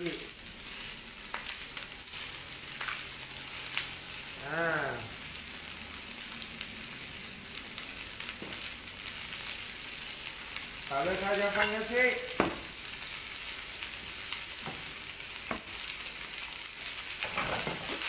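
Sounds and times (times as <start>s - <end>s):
vegetables sizzling in a wok: 0.0s - 18.0s.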